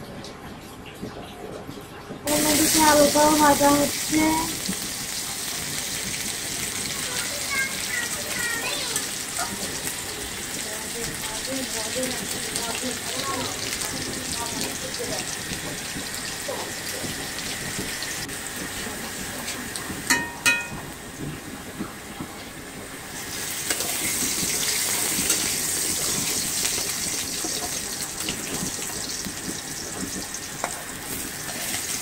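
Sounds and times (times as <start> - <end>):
potatoes sizzling in oil: 2.3 - 32.0.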